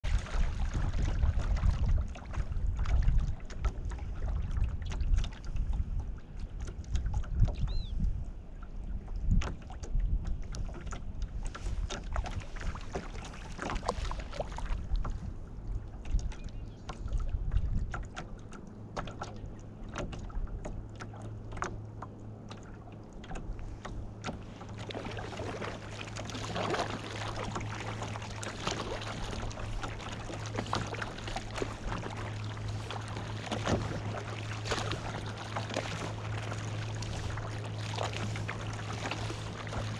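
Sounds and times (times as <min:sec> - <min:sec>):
wind rumbling on microphone: 0:00.0 - 0:18.4, 0:23.3 - 0:39.9
paddle splashes: 0:00.0 - 0:39.9
water lapping against hull: 0:00.0 - 0:39.9
steady low hum: 0:00.1 - 0:39.9.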